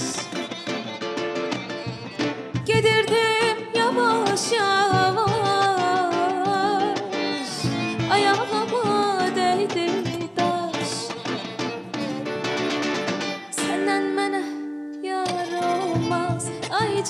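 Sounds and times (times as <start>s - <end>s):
woman singing with vibrato: 0.0s - 0.3s, 2.6s - 11.6s, 13.4s - 17.0s
plucked acoustic guitar: 0.0s - 17.0s.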